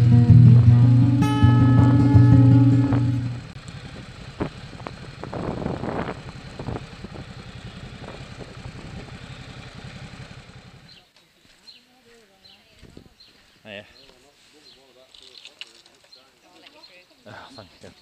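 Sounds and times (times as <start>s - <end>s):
motorcycle engine running: 0.0s - 11.1s
gravel crunching: 3.4s - 17.8s.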